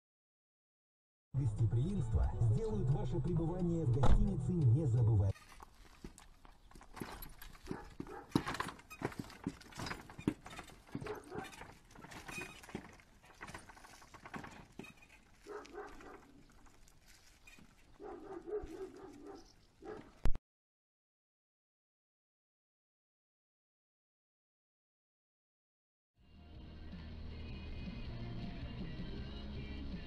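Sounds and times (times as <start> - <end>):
horse hooves on pavement: 5.6 - 20.2.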